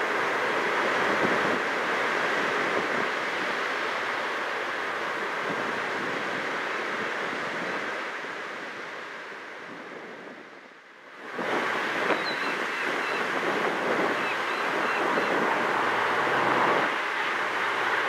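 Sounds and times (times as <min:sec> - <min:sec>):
wind buffeting microphone: 0:11.2 - 0:18.0
distant train approaching: 0:14.2 - 0:18.0.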